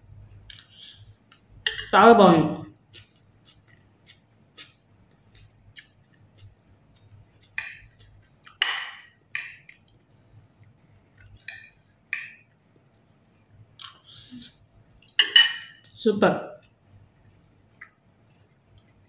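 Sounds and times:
cutlery clinking on a plate: 8.5s - 9.7s, 11.4s - 12.4s, 15.1s - 15.9s.

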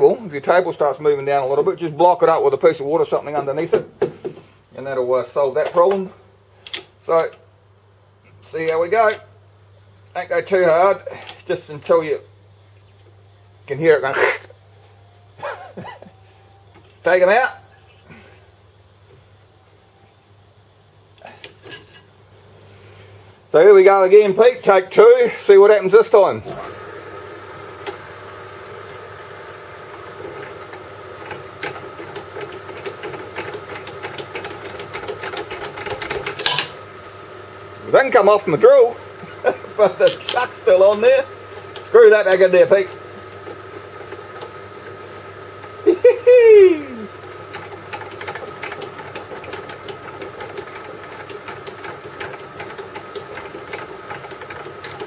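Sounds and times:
drill press motor hum: 25.9s - 55.0s.

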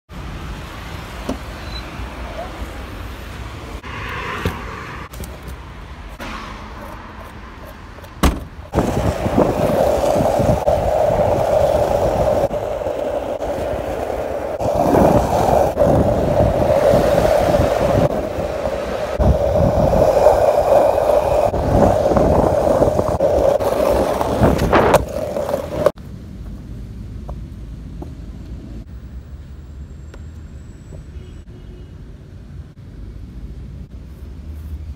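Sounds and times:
skateboard wheels rolling on pavement: 0.1s - 29.5s
car trunk lid shutting: 8.2s - 8.6s.

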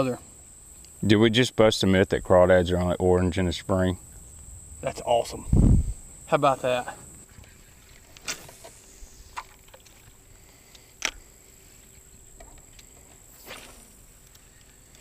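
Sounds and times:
faint high whine: 0.0s - 15.0s
fishing tackle clicking: 10.7s - 11.2s.

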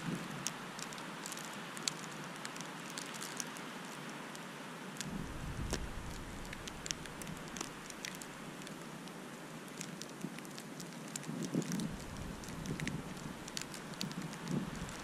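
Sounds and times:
snowfall hiss: 0.0s - 15.0s
wind buffeting microphone: 5.0s - 8.5s, 11.2s - 15.0s
snowflakes ticking on camera: 5.0s - 15.0s.

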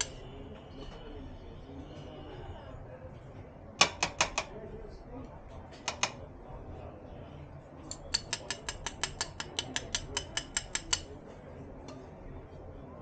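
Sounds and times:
metal tongs clicking: 7.9s - 11.1s.

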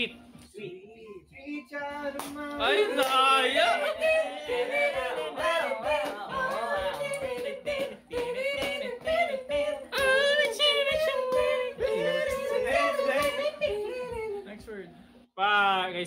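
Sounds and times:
young men singing unaccompanied: 1.5s - 14.3s.

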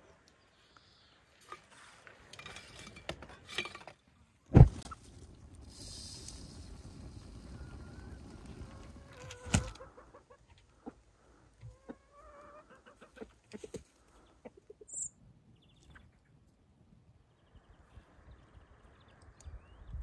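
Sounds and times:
fire flaring rumble: 4.5s - 9.8s
chickens clucking: 7.5s - 15.0s.

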